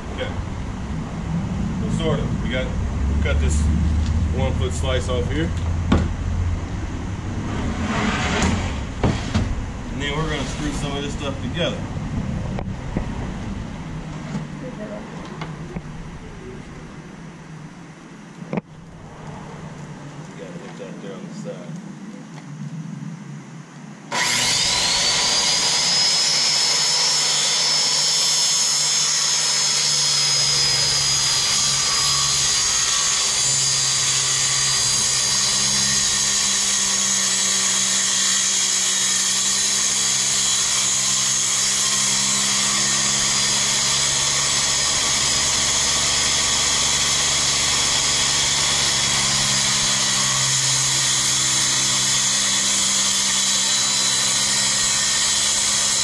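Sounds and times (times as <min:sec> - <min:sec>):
circular saw cutting plywood: 0:07.3 - 0:11.8, 0:24.1 - 0:56.0.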